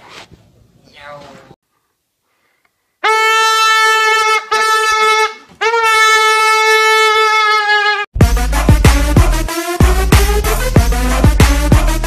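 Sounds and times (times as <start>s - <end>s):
balloon squealing: 3.1s - 8.1s.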